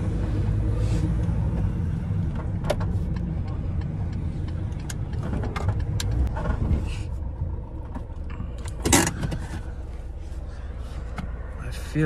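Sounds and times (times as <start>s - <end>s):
van engine and road rumble: 0.0s - 12.0s.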